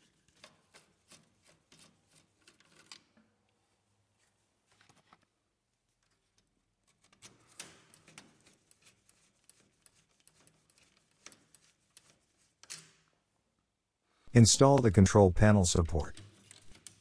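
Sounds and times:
screwdriver clicking in metal frame: 16.1 - 17.0.

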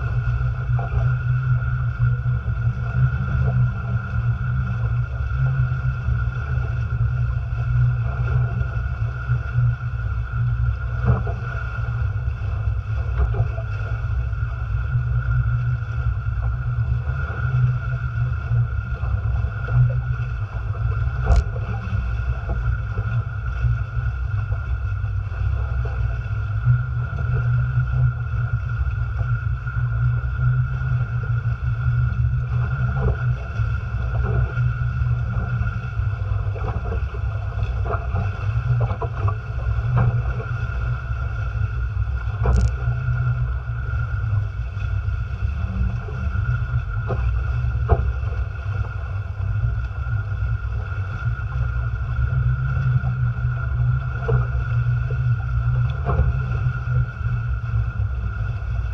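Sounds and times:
water rushing along hulls: 0.0 - 58.9
wind buffeting microphone: 0.0 - 58.9.

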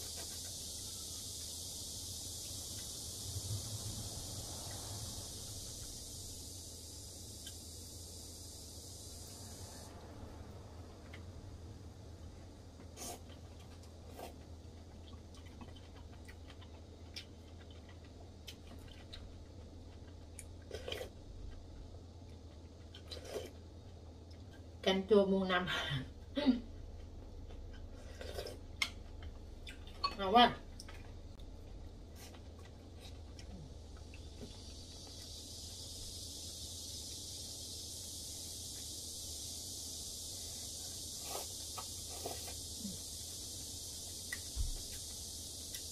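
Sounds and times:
steady high hiss: 0.0 - 14.4, 27.8 - 45.9
low steady hum: 0.0 - 45.9
person chewing: 12.8 - 24.6, 26.7 - 30.1, 41.2 - 43.1.

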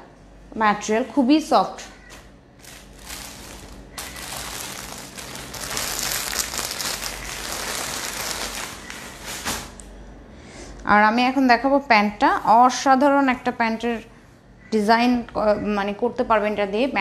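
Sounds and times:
clothing rustling and crinkling: 2.1 - 9.8.

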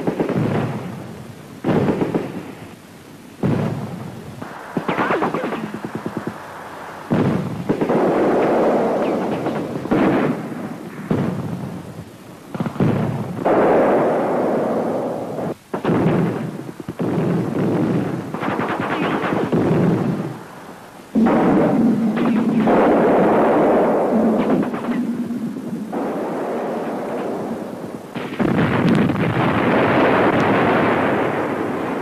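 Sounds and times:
rapid gunfire: 0.0 - 0.9, 1.6 - 2.6, 4.4 - 11.4, 12.5 - 20.4, 21.1 - 25.3
heavy blasts: 21.1 - 32.0.

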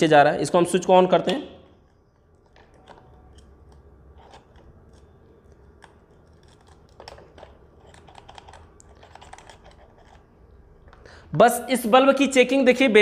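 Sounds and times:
plastic parts clicking and scraping: 1.7 - 11.0.

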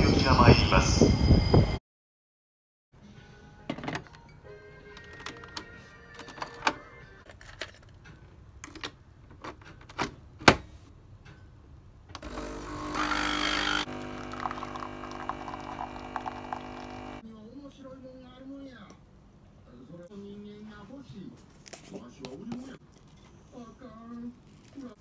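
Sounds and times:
coffee machine pump buzzing: 12.2 - 17.2.

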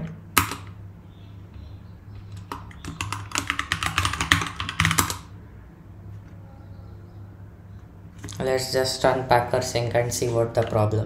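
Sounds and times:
low steady hum: 0.0 - 11.0
typing on computer keyboard: 2.3 - 5.3.

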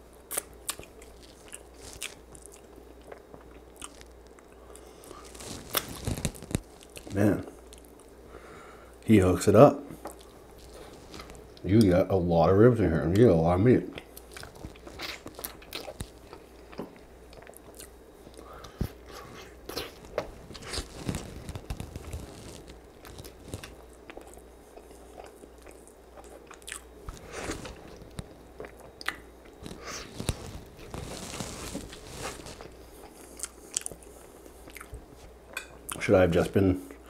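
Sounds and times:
chewing and biting food: 0.3 - 7.1, 14.0 - 35.0.

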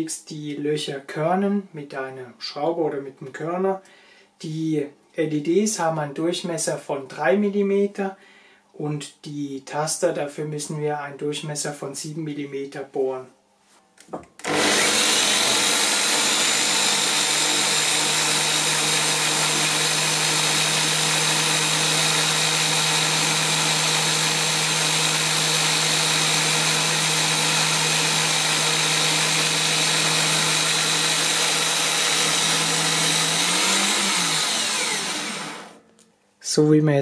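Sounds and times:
electric drill humming: 14.4 - 35.8.

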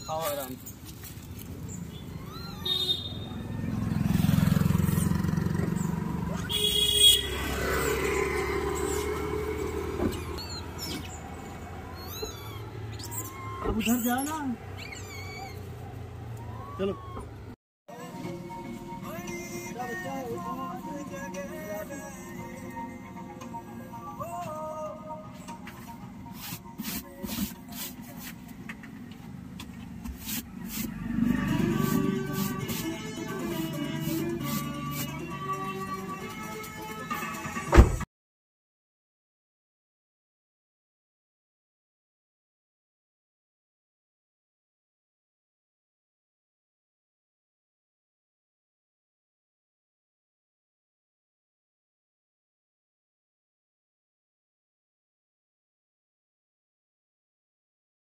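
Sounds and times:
vehicle engine rumble: 0.3 - 17.6, 25.4 - 38.1
footsteps on dry leaves: 0.5 - 1.9
short high-pitched horn beep: 2.6 - 3.4, 6.4 - 7.4.

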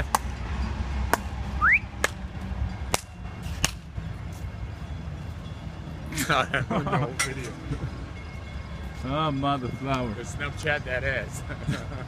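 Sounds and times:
city street rumble: 0.0 - 12.0
rising whistle-like chirp: 1.6 - 1.9.

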